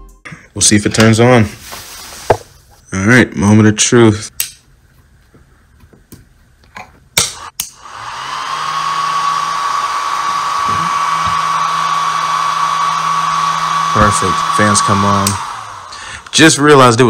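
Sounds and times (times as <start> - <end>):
cooling fans whining: 7.2 - 17.0.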